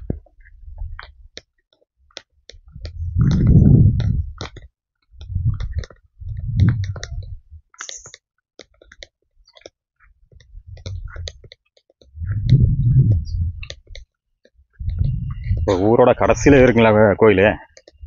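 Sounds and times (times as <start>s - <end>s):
low muffled rumbles: 2.7s - 4.5s, 5.2s - 7.6s, 10.6s - 11.4s, 12.1s - 13.8s, 14.7s - 17.0s.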